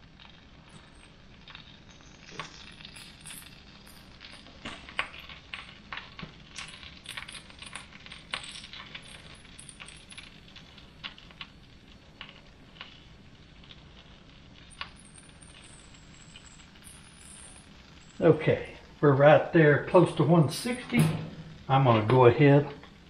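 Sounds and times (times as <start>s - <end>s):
fat crackling and popping: 0.0s - 23.0s.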